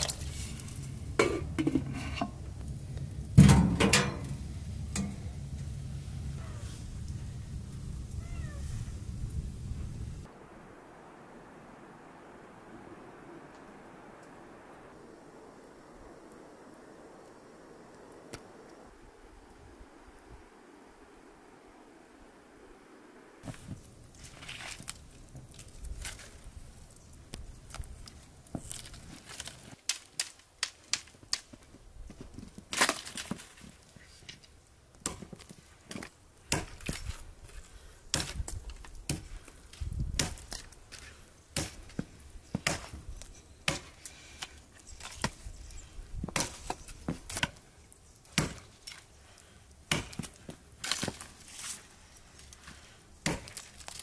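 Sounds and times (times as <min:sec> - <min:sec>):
blade chopping wood: 0:36.5 - 0:37.1, 0:48.3 - 0:48.7, 0:49.9 - 0:51.3, 0:53.2 - 0:53.7.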